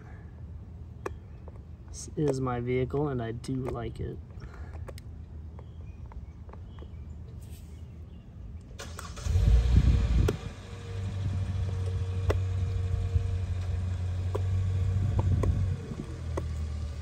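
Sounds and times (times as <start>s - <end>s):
vehicle engine running: 9.0s - 17.0s.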